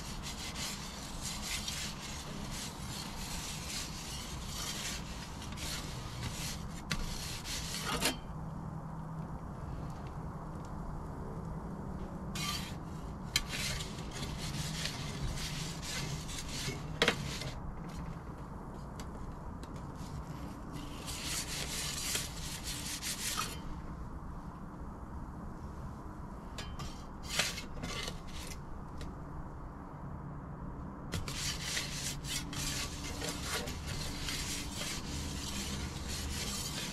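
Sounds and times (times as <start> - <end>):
metal pizza peel scraping stone: 0.0 - 8.3, 12.3 - 18.0, 20.0 - 23.7, 26.6 - 28.6, 31.1 - 36.9.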